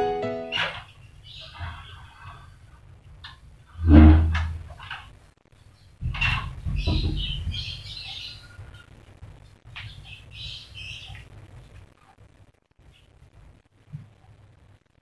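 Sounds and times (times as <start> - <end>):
bird chirping: 0.5 - 2.4, 5.8 - 8.8, 9.8 - 11.3
rustling: 3.2 - 10.0
low thuds: 3.8 - 4.8, 6.0 - 7.8.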